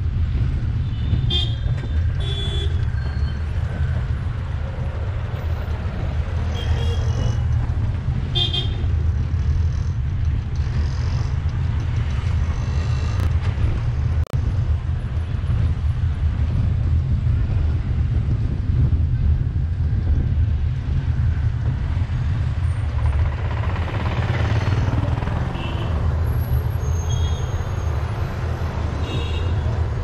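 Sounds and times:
engine and road noise: 0.0s - 30.0s
vehicle horn toots: 2.2s - 2.8s.

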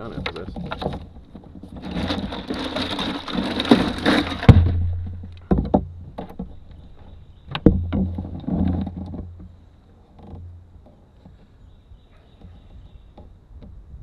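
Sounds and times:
plastic lid rustling: 0.0s - 10.5s.

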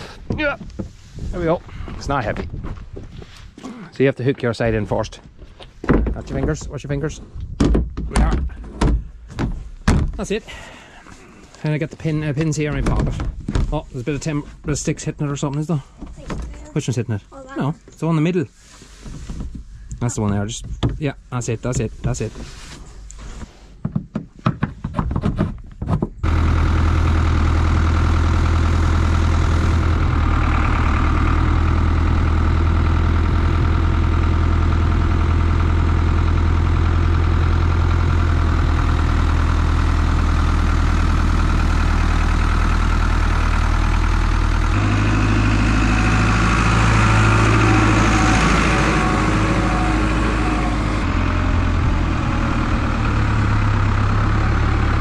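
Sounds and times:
tractor diesel engine running: 0.0s - 3.1s, 26.2s - 55.0s.

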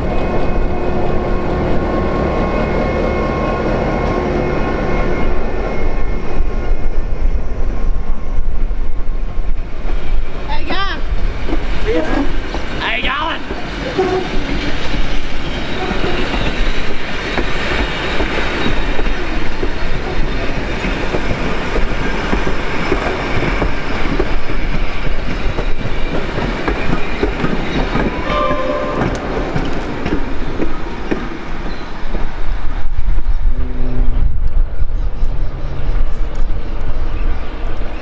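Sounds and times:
train carriages rumbling past: 0.0s - 38.0s
brief horn-like tone: 28.2s - 29.6s.

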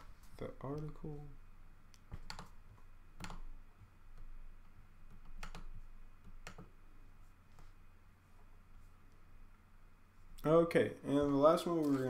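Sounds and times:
faint low hum: 0.0s - 12.0s
keyboard and mouse clicks: 1.9s - 6.8s.

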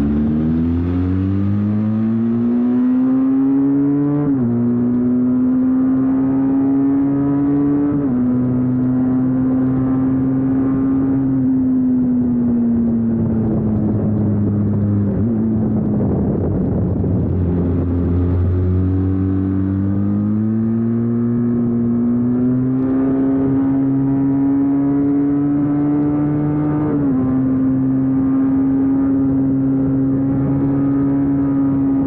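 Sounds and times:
motorcycle engine running: 11.7s - 22.4s.

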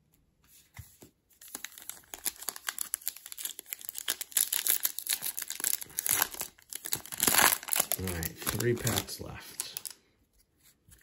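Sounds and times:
wrapper crinkling: 1.4s - 10.0s.

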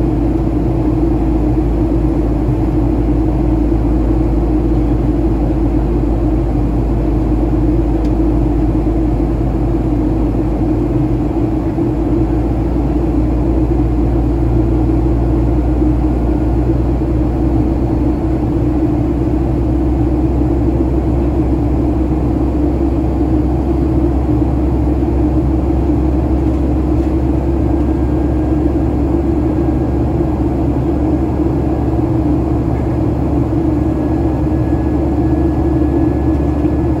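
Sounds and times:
jet engine drone in cabin: 0.0s - 37.0s
airflow rush: 8.8s - 37.0s.

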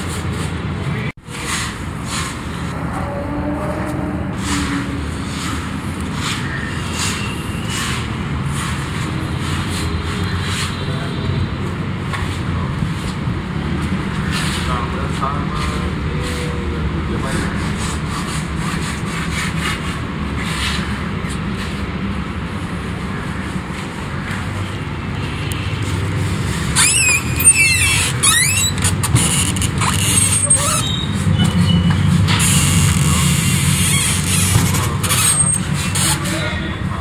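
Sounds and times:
traffic rumble: 0.0s - 37.0s
high-pitched metallic squeal: 2.6s - 5.7s, 26.6s - 28.8s, 30.0s - 34.3s
short high squeaks: 26.6s - 36.3s.

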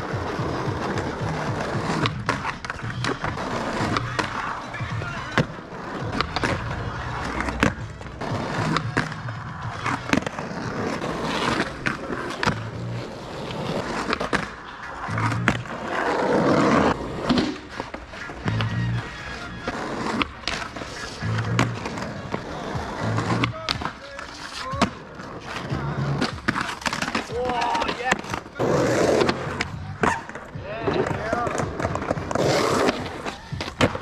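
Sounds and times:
background music with bass line: 0.0s - 10.2s, 15.0s - 16.8s, 18.4s - 20.2s, 21.1s - 23.6s
skateboard clacking on ground: 0.0s - 34.0s
skateboard wheels rolling on asphalt: 0.0s - 34.0s.

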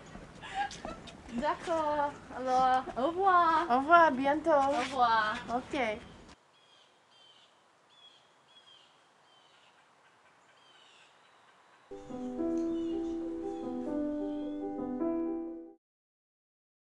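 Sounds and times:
birds chirping faintly: 5.8s - 14.9s
keyboard chords music: 11.9s - 15.8s.

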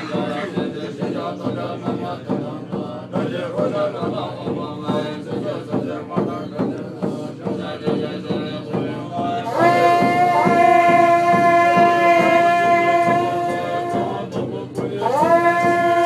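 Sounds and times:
monks chanting: 0.0s - 16.0s
percussion strikes: 0.0s - 16.0s
wind instrument long note: 9.5s - 14.3s, 15.0s - 16.0s.

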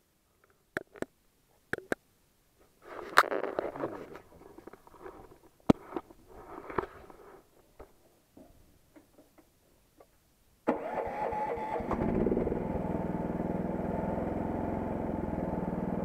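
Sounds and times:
cloth rubbing against microphone: 2.7s - 7.6s.

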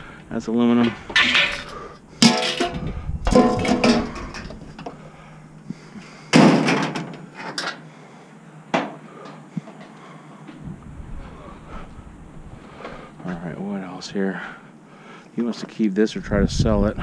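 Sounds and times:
scrap metal clanging onto pile: 1.2s - 4.6s.

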